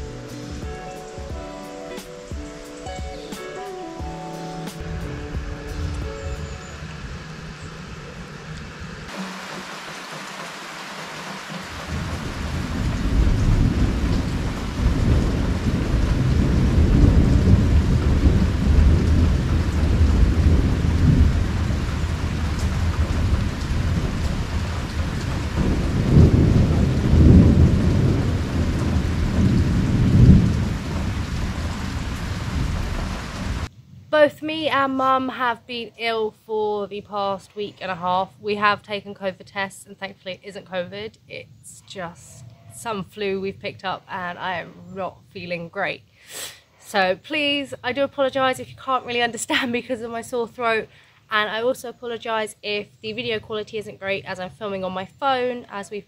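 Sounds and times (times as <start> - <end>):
thunder rumbling: 4.8 - 9.6, 11.3 - 34.2
heavy rain pouring: 4.8 - 33.7.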